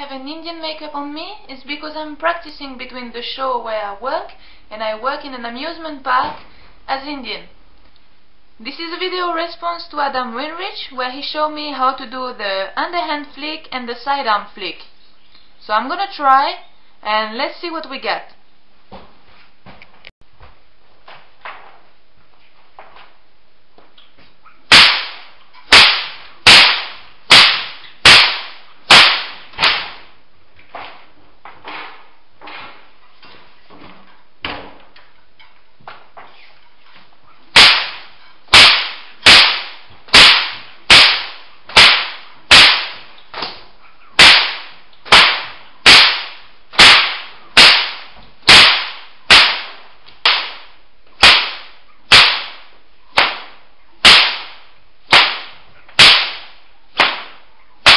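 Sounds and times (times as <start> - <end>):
whip cracking with echo: 24.7 - 30.2, 37.5 - 57.9.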